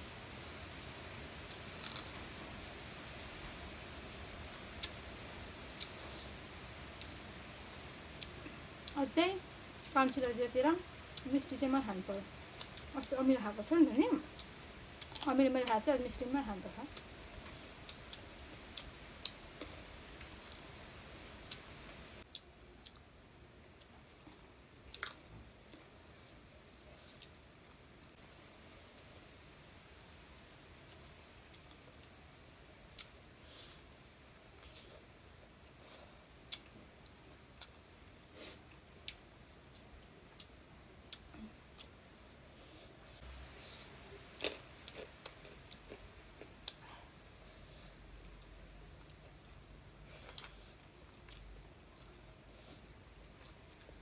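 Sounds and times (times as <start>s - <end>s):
people chewing food: 1.4s - 2.3s, 16.8s - 20.8s, 21.4s - 28.2s, 32.9s - 54.0s
chewing and wet mouth clicks: 21.5s - 23.1s.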